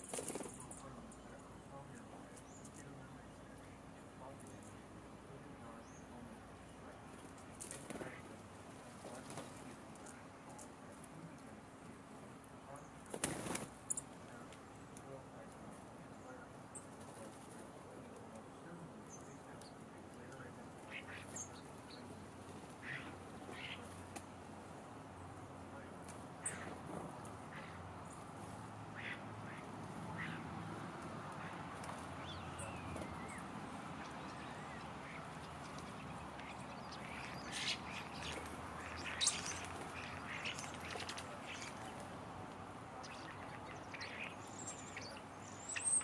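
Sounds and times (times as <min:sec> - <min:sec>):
birds calling harshly: 0:00.0 - 0:46.0
faint background noise: 0:00.0 - 0:46.0
high bird chirps: 0:31.4 - 0:42.0, 0:43.0 - 0:46.0.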